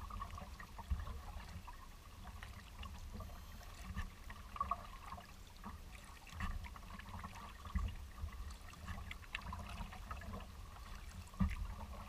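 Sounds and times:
paddle drips and splashes: 0.0s - 12.0s
water lapping around a kayak: 0.0s - 12.0s.

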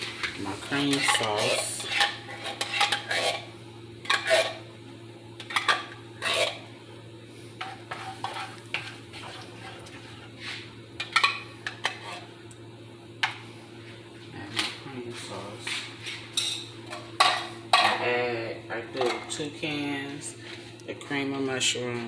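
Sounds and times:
steady low hum: 0.0s - 22.0s
spoon scraping metal can: 0.8s - 4.6s, 5.5s - 6.6s.

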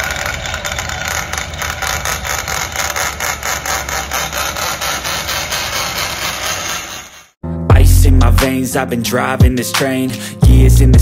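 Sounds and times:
electric drill boring through metal: 0.0s - 7.4s.

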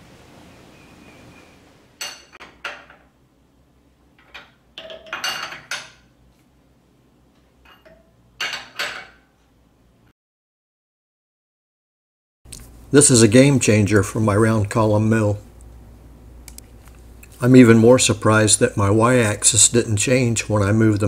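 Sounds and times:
wrench clinking on metal bolts: 7.6s - 9.3s.

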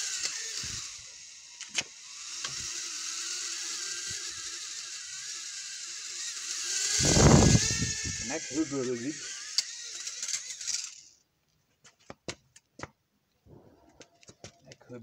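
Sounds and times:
drone propellers whirring: 0.0s - 11.1s.

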